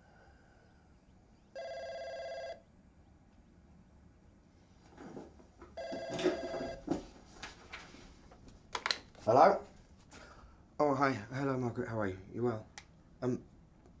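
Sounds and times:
telephone ringing with electronic trill: 1.6s - 2.7s, 5.8s - 6.8s
knocks and rustling: 4.8s - 9.2s.

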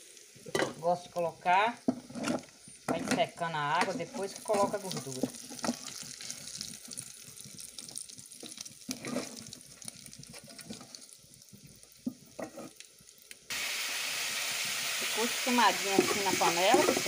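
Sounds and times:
loud sizzling hiss: 0.0s - 2.9s, 10.9s - 17.0s
cracklings sizzling in hot fat: 0.0s - 17.0s
wooden spoon scraping a pot: 1.8s - 6.0s, 8.9s - 9.5s, 12.4s - 12.8s, 15.0s - 17.0s.

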